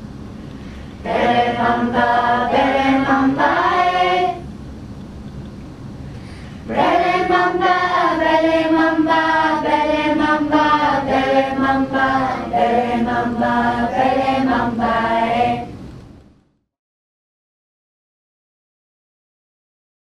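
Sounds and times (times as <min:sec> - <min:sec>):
children and adults singing: 0:01.0 - 0:04.5, 0:06.7 - 0:15.8.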